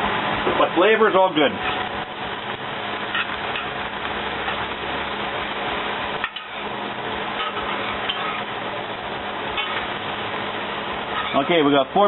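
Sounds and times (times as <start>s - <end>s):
vegetables sizzling in a skillet: 0.0s - 12.0s
metal spatula scraping a pan: 3.1s - 3.8s, 6.2s - 6.7s, 7.3s - 8.6s, 9.5s - 10.0s, 11.0s - 11.8s.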